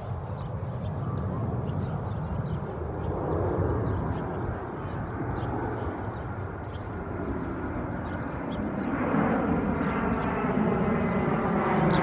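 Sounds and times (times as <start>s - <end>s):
bird chirps: 0.0s - 9.1s
jet airliner passing overhead: 0.0s - 12.0s.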